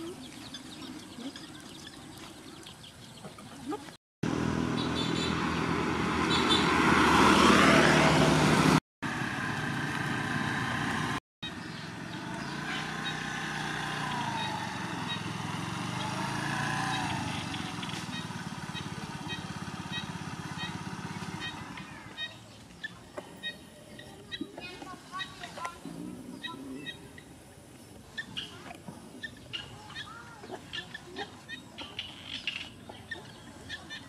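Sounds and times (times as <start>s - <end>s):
motor scooter engine running: 4.2s - 23.6s.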